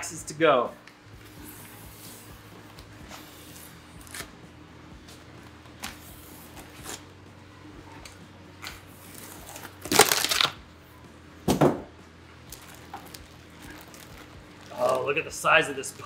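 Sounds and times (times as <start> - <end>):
packing tape ripping: 3.5 - 4.4, 5.8 - 7.1, 8.6 - 10.6, 12.5 - 15.1.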